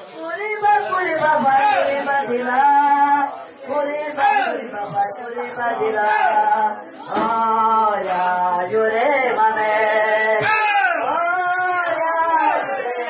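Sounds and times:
group of voices singing: 0:01.1 - 0:13.0
fast high rattle: 0:09.8 - 0:13.0.

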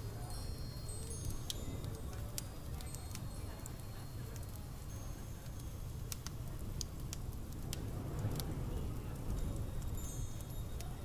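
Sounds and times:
faint high ringing tones: 0:00.0 - 0:01.9
small crackles and clicks: 0:00.0 - 0:11.0.

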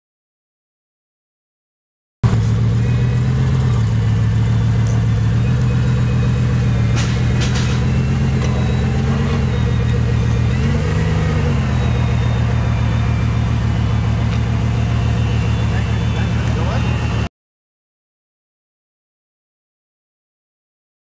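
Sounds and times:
car engine idling: 0:02.2 - 0:17.3.

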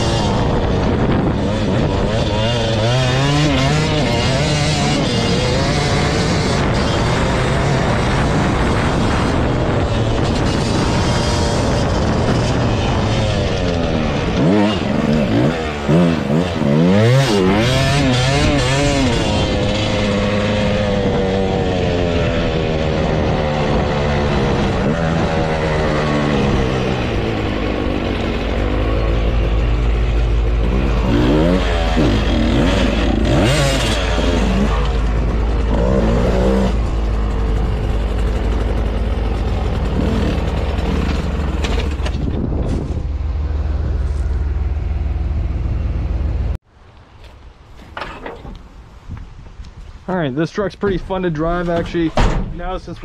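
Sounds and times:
dirt bike engine: 0:00.0 - 0:53.0.

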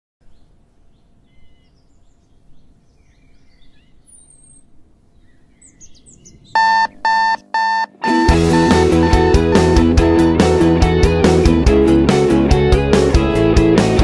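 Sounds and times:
birds chirping and twittering: 0:00.2 - 0:08.2.

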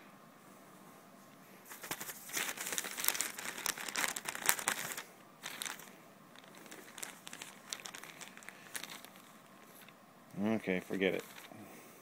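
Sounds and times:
cat scratching newspaper: 0:01.7 - 0:09.9.

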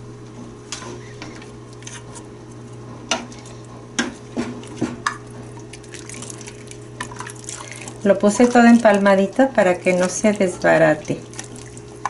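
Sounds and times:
steady low hum: 0:00.0 - 0:12.0
spoon stirring broth in pot: 0:03.1 - 0:12.0.

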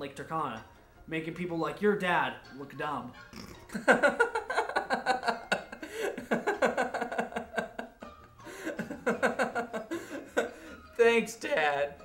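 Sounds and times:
man laughing: 0:03.4 - 0:10.8.

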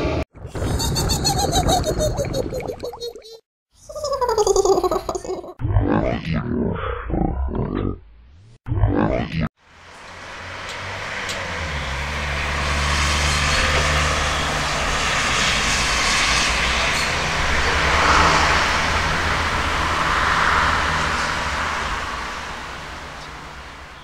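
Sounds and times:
aircraft engine drone: 0:09.7 - 0:22.0.

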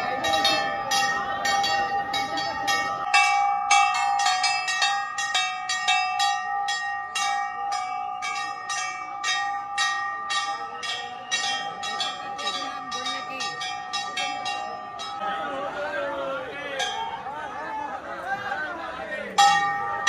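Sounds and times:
brass temple bells struck: 0:00.0 - 0:15.6.

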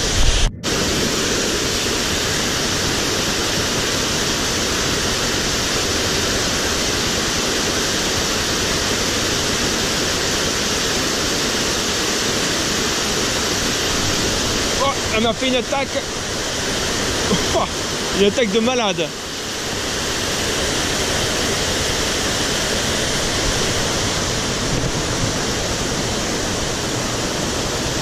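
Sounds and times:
waterfall pouring into pool: 0:00.3 - 0:28.0.

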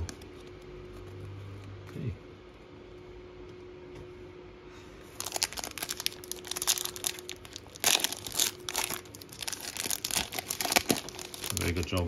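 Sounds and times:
foil wrapper crinkling: 0:05.2 - 0:12.0
foil wrapper tearing: 0:05.2 - 0:12.0.

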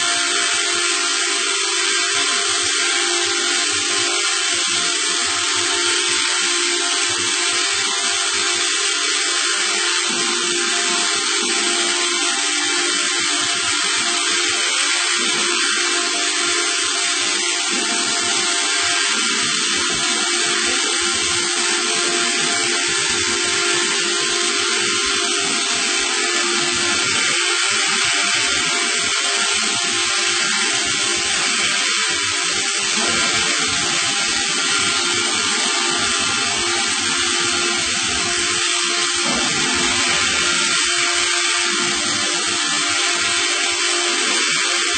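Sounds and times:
machine hissing: 0:00.0 - 0:44.9
constant low hum: 0:09.6 - 0:44.9.

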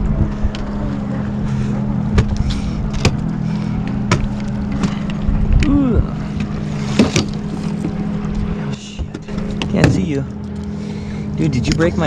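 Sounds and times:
boat motor humming: 0:00.0 - 0:12.0.

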